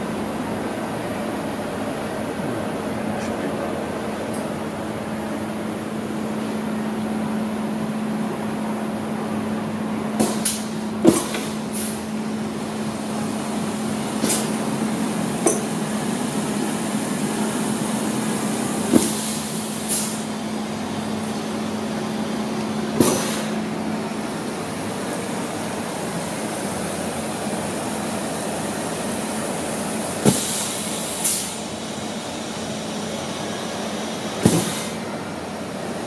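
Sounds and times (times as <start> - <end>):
compressed air hiss: 10.2 - 12.0, 18.5 - 20.4, 23.0 - 23.6, 30.2 - 31.9, 34.3 - 35.1.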